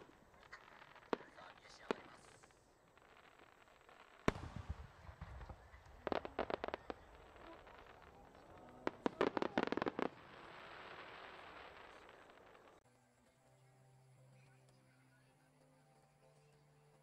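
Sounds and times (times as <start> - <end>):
rapid crackling firework pops: 0.0 - 12.8
firework shell booming: 4.2 - 8.0.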